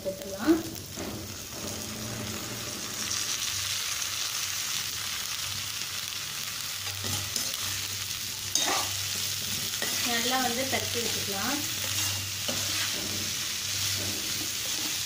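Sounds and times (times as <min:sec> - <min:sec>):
oil sizzling in a pan: 0:00.0 - 0:15.0
spatula stirring: 0:08.5 - 0:15.0.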